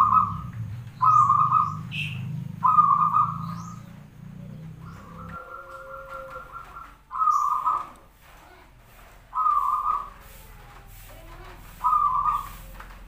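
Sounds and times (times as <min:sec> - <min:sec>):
dove cooing: 0:00.0 - 0:13.0.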